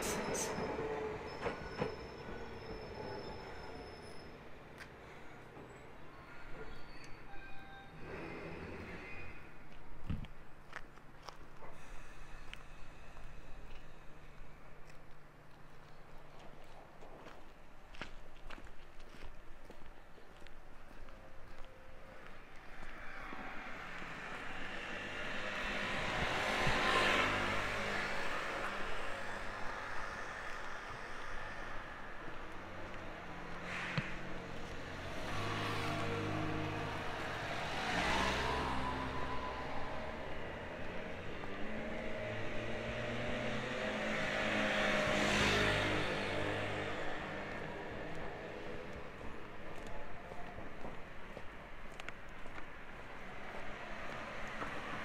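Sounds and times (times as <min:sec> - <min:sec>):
vehicle passing by: 0:23.2 - 0:28.9, 0:33.6 - 0:49.0.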